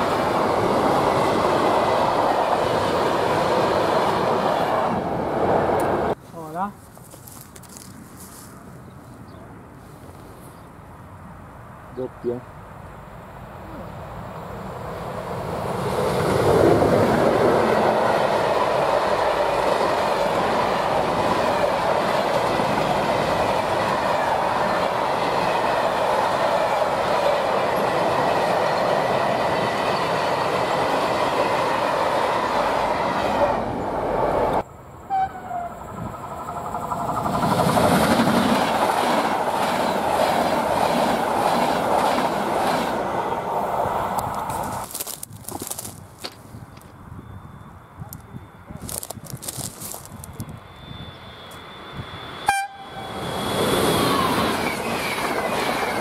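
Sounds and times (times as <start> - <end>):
freight train rolling past: 0.0 - 6.2, 13.9 - 44.9, 50.0 - 56.0
passenger train passing: 0.0 - 6.6, 12.6 - 46.0, 46.7 - 56.0.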